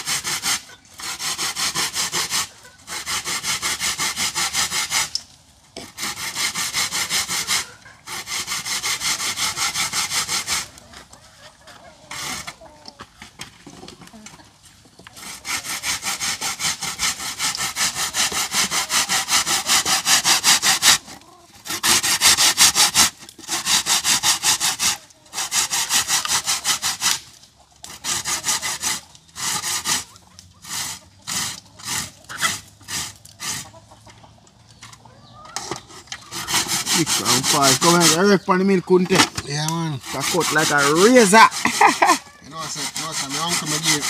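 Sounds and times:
grater scraping: 27.9 - 33.6, 35.8 - 38.5, 39.1 - 44.0.

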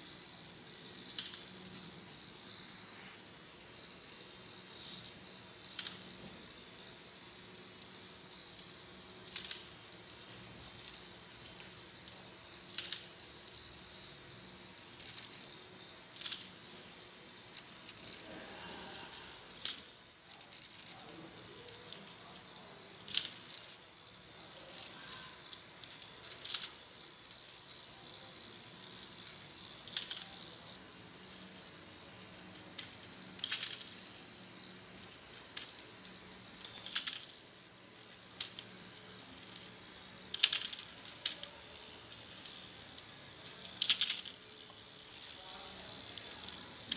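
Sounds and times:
toy motor whirring: 0.0 - 46.9
sharp mechanism clicks: 8.5 - 13.3, 15.0 - 16.7, 21.7 - 23.8, 24.8 - 27.6, 28.9 - 30.8, 32.5 - 34.0, 35.0 - 37.4, 38.2 - 46.9.

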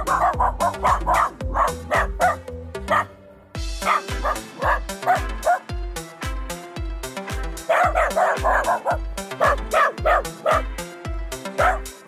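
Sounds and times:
dog barking: 0.0 - 3.1, 3.8 - 5.7, 7.6 - 10.7, 11.6 - 11.9
background music with beat: 0.0 - 12.0.

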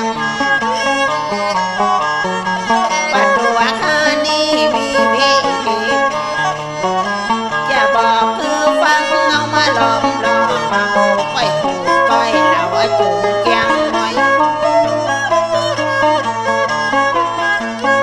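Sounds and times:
bowed fiddle: 0.0 - 18.0
plucked lute: 0.0 - 18.0.

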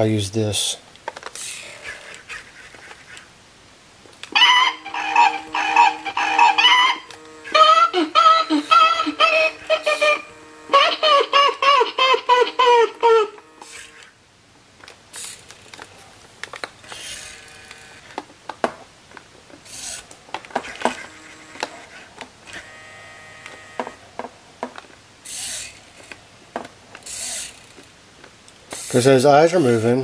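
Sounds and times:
faint motor whine: 0.7 - 30.0
plastic gears clicking and ratcheting: 1.0 - 3.2, 14.8 - 22.7, 24.7 - 30.0
whirring hisses: 4.4 - 14.2, 25.2 - 26.1, 27.0 - 27.8, 28.7 - 30.0.

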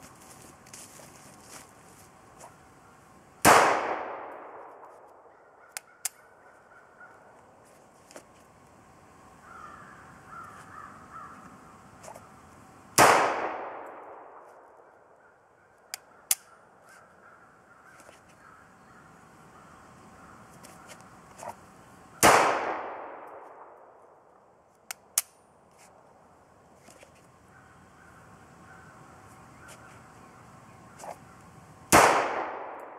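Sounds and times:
pistol shots with echo: 3.4 - 4.9, 13.0 - 14.7, 22.2 - 24.0, 31.9 - 32.9.

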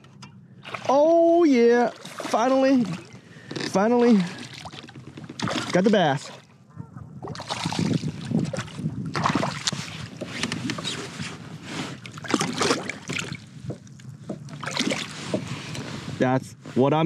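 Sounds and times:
fish thrashing and splashing: 0.6 - 1.2, 1.8 - 6.5, 7.2 - 11.1, 11.9 - 13.5, 14.4 - 15.5.

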